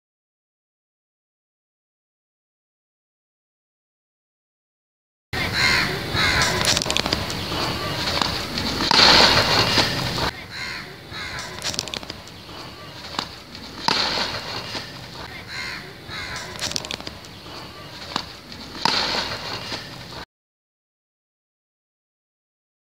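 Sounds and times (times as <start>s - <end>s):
crows cawing: 5.4s - 20.2s.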